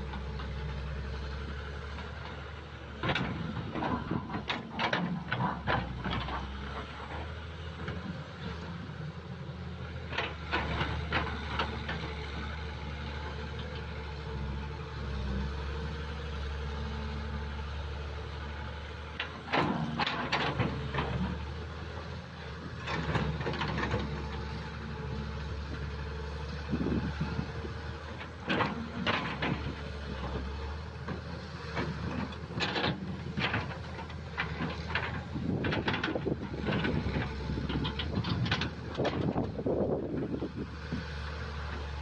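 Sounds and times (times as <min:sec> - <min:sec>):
excavator diesel engine running: 0:00.0 - 0:42.0
excavator bucket clanking and scraping: 0:02.0 - 0:08.9, 0:10.0 - 0:12.2, 0:19.0 - 0:42.0.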